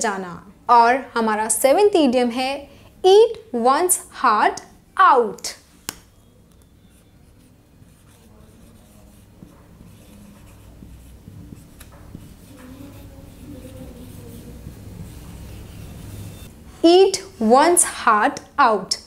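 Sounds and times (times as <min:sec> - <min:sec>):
marker squeaking on whiteboard: 0:05.4 - 0:16.5.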